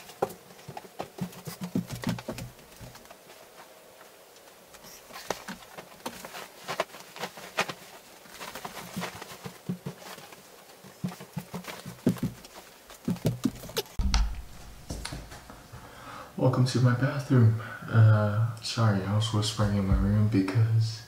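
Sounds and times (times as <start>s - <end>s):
bedding rustling and flapping: 0.0s - 16.0s
loud bump: 14.0s - 15.7s.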